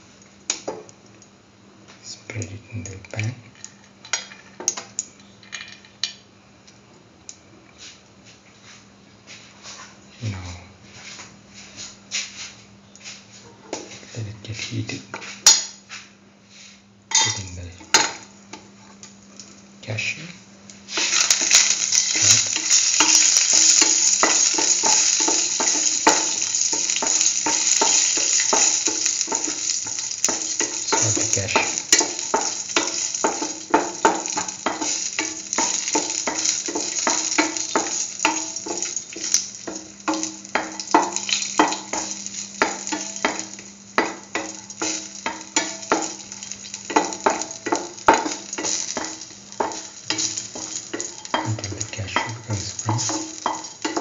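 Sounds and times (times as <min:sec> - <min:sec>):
cashews sizzling in hot ghee: 0:00.0 - 0:01.3, 0:17.1 - 0:54.0.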